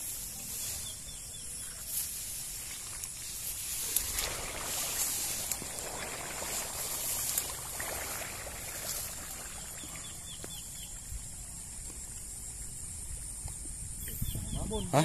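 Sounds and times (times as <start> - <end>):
trickling water: 2.4 - 13.9
bird chirping: 14.0 - 15.0.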